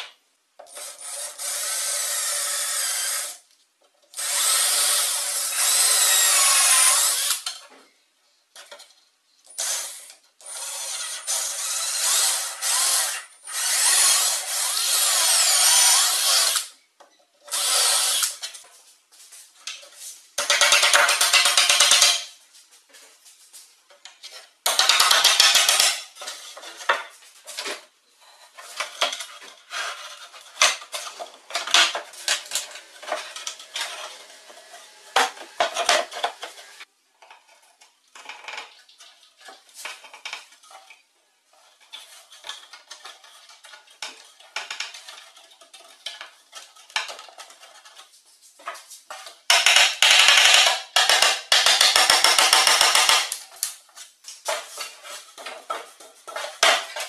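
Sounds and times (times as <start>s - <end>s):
wooden pieces knocking and clattering: 19.6s - 22.3s, 23.9s - 27.9s, 28.6s - 34.5s, 37.2s - 57.0s.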